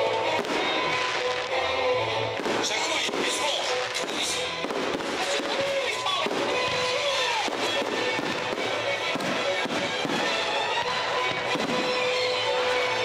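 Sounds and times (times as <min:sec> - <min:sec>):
fireworks popping and crackling: 0:00.0 - 0:13.0
show music with held notes: 0:00.0 - 0:13.0.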